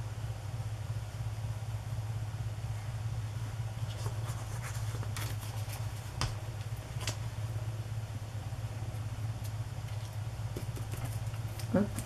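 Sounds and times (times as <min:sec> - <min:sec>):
steady low hum: 0:00.0 - 0:12.0
paper taps and rustles: 0:03.9 - 0:07.2, 0:09.9 - 0:12.0.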